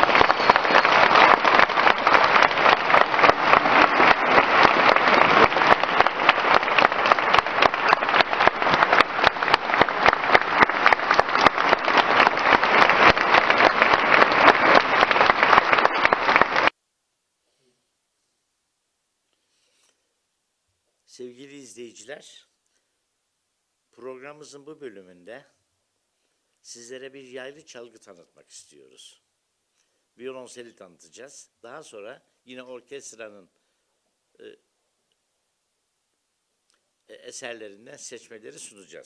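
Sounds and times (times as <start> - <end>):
audience applauding: 0.0 - 16.7.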